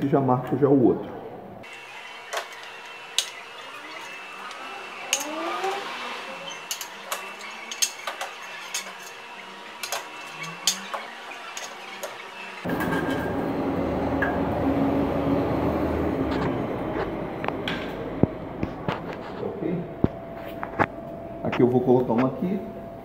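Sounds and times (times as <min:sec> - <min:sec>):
background rumble with low hum: 0:13.7 - 0:23.0.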